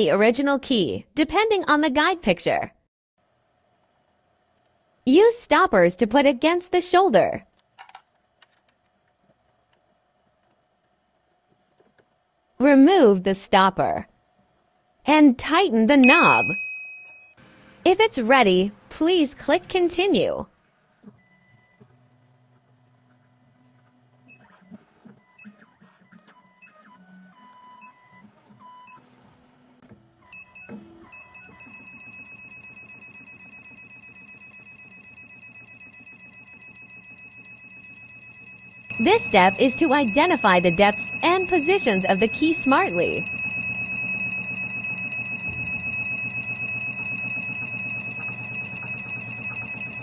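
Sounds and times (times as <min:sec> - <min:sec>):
fast buzzing pulse: 0:38.6 - 0:50.0
steady high whine: 0:38.8 - 0:50.0
stepper motors whining: 0:38.8 - 0:50.0.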